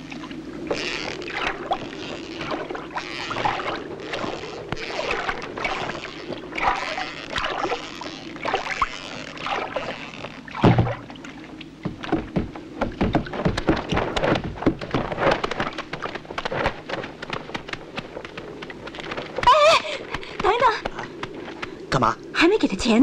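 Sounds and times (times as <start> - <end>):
water lapping against boat hull: 0.0 - 22.4
heavy thump: 10.6 - 11.0.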